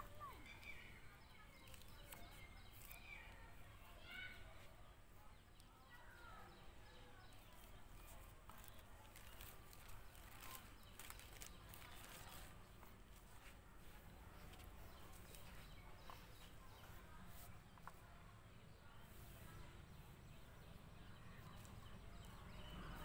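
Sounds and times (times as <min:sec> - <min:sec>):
plastic bag crinkling: 0:08.5 - 0:12.6.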